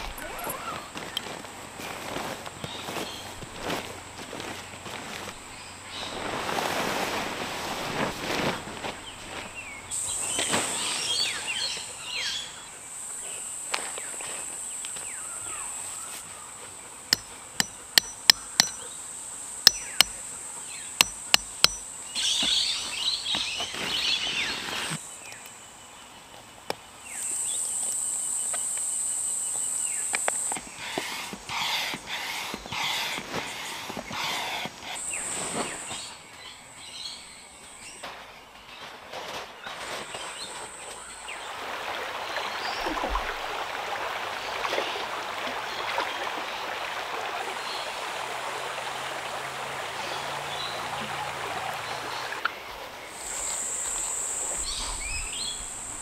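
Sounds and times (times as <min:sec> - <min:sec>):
tent fabric rustling: 0:00.0 - 0:11.5, 0:23.4 - 0:25.0, 0:32.8 - 0:36.1
hammer knocking tent pegs: 0:17.2 - 0:18.8, 0:21.0 - 0:21.8
high insect buzz: 0:53.2 - 0:56.0.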